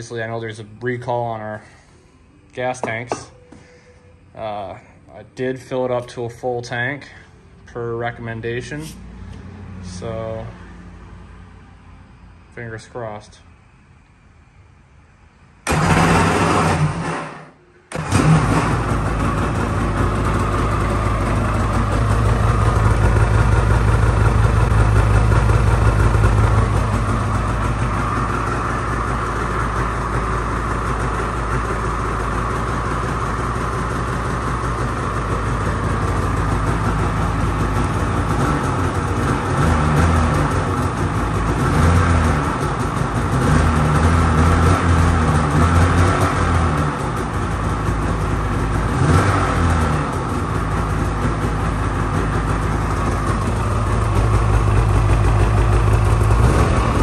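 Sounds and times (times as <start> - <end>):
snowmobile engine starting and running: 15.6 - 57.0.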